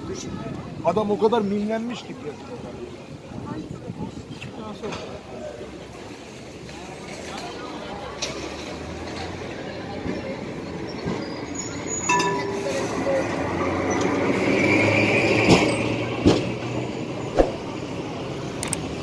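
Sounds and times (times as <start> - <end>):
tram wheels rumbling on rails: 4.7 - 19.0
faint wheel squeal: 10.1 - 15.0.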